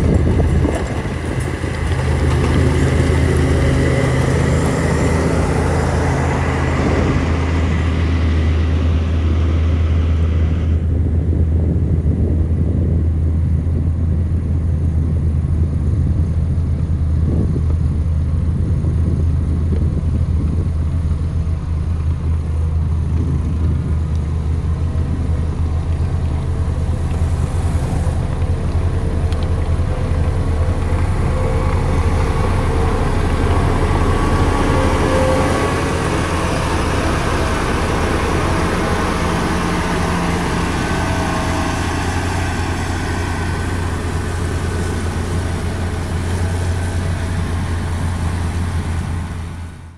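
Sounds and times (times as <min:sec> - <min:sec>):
diesel engine rumble: 0:00.0 - 0:49.9.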